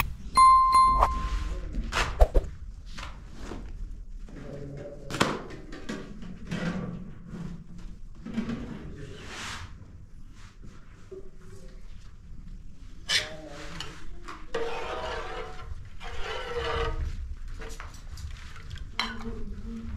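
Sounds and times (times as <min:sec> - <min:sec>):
chime: 0:00.4 - 0:01.6.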